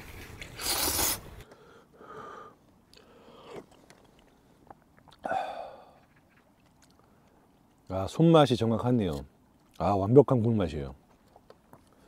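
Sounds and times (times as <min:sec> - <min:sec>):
person chewing and slurping: 0:00.6 - 0:01.2
breathy sound: 0:05.2 - 0:06.0.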